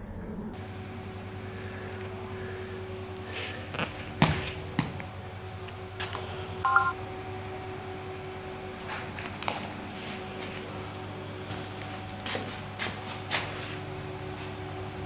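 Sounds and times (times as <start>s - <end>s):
electrical hum: 0.0s - 15.0s
electronic beep tones: 6.6s - 7.0s.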